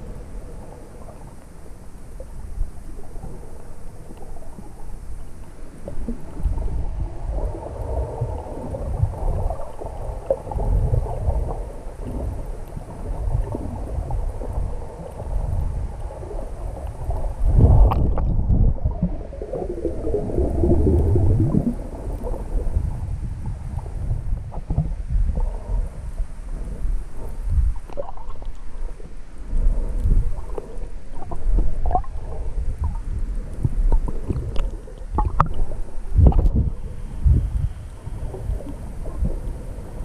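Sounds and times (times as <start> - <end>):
muffled underwater sloshing: 0.0 - 40.0
wobbling gurgle: 15.8 - 22.9, 31.2 - 33.0, 33.9 - 36.8.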